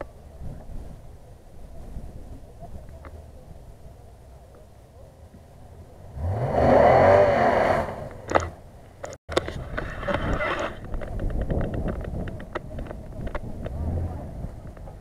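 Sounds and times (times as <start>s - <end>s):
truck engine revving: 6.0s - 8.7s, 13.4s - 15.0s.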